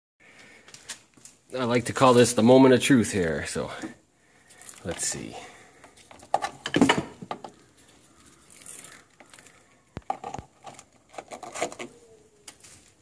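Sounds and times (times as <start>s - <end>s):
hard objects clattering: 4.6s - 12.0s.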